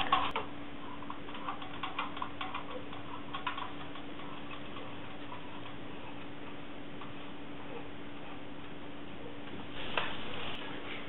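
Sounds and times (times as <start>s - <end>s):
toy ladder mechanism clicking: 1.1s - 5.8s.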